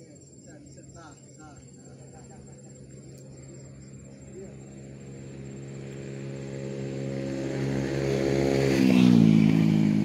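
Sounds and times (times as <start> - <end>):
vehicle engine passing by: 1.6 - 10.0.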